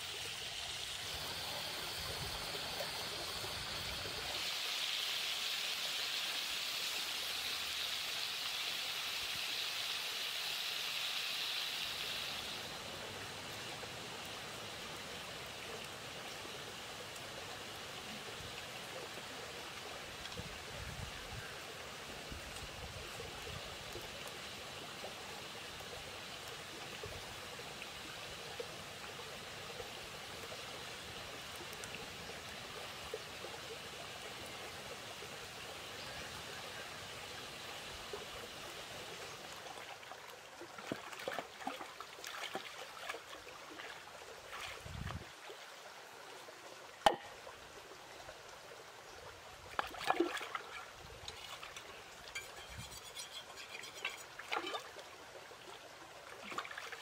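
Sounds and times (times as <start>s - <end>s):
small stream running: 0.0s - 57.0s
water splashes and taps: 39.7s - 45.6s, 47.0s - 47.6s, 49.7s - 55.1s, 55.7s - 57.0s.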